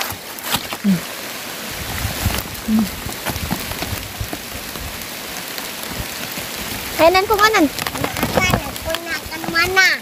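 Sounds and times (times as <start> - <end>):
dry leaf litter rustling: 0.0 - 10.0
heavy rain on leaves: 0.0 - 10.0
low rumble of wind: 1.0 - 9.8.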